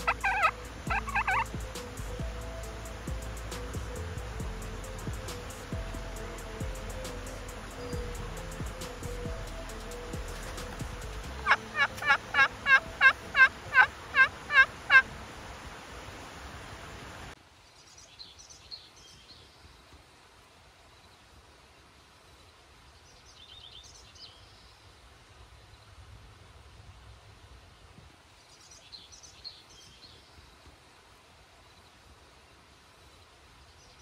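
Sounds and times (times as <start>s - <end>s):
turkey yelps: 0.0s - 1.5s, 11.4s - 15.1s
small bird chirps: 0.0s - 2.2s.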